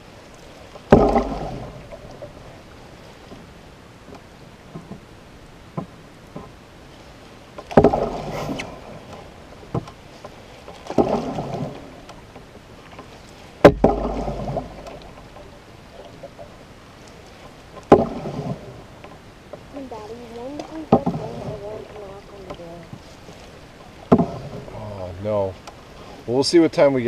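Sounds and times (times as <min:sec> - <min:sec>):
paddle splashing in water: 0:00.0 - 0:27.0
small knocks: 0:24.1 - 0:24.4.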